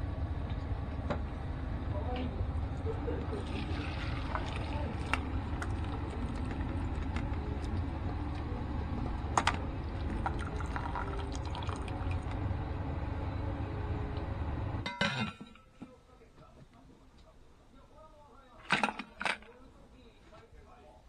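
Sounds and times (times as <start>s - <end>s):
broth pouring through colander: 3.4s - 8.6s, 9.7s - 12.5s.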